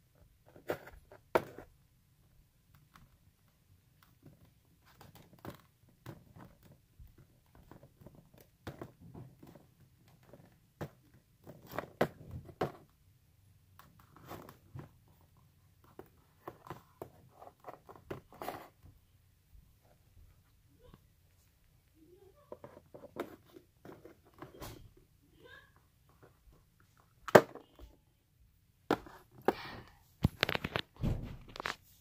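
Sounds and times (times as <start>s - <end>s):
plastic toys clicking on cardboard: 3.9s - 12.9s.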